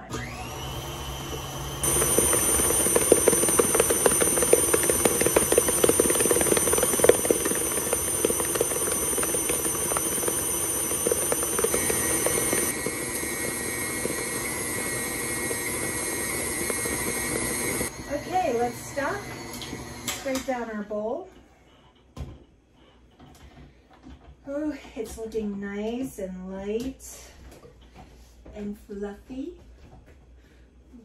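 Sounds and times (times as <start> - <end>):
stand mixer motor whine: 0.0 - 20.5.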